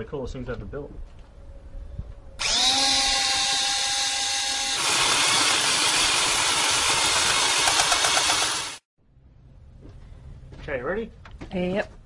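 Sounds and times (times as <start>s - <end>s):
power drill drilling metal: 2.4s - 8.9s.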